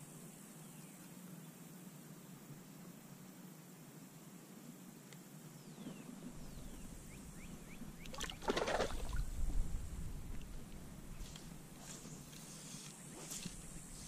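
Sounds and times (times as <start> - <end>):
water sloshing and splashing: 8.0 - 9.4.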